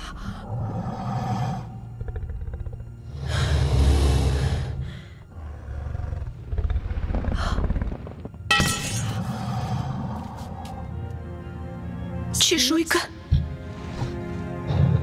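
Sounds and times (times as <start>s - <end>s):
low pulsing growl: 0.0s - 8.4s.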